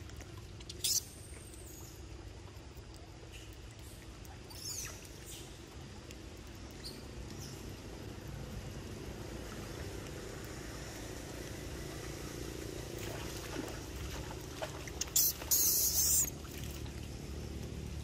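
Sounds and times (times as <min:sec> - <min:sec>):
floodwater running: 0:00.0 - 0:18.0
loud hissing splash: 0:10.6 - 0:16.8.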